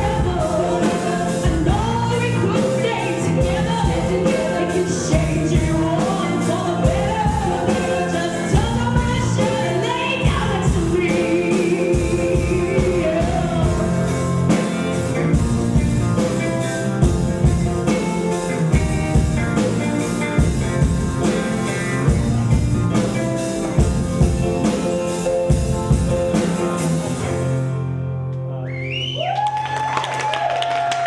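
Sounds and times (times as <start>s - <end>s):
live band music: 0.0s - 28.6s
audience whooping: 28.6s - 31.0s.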